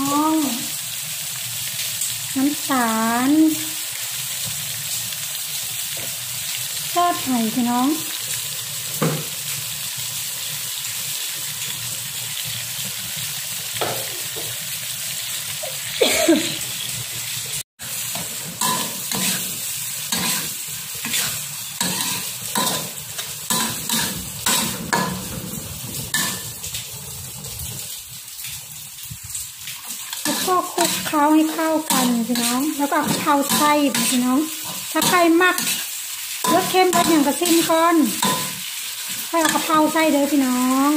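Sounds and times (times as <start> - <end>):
food sizzling in a wok: 0.0 - 40.9
metal spatula scraping a pan: 18.0 - 25.4, 29.9 - 40.3.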